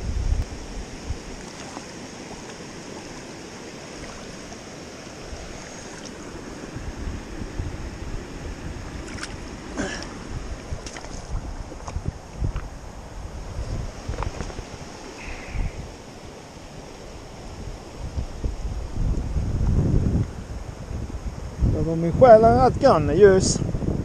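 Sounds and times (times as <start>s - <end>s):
river flowing: 0.0s - 19.5s
rustle: 0.0s - 22.0s
wind buffeting microphone: 0.0s - 24.0s.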